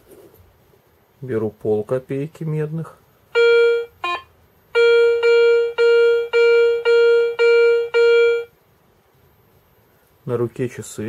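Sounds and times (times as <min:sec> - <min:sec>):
metal detector beeping: 0:03.4 - 0:08.5.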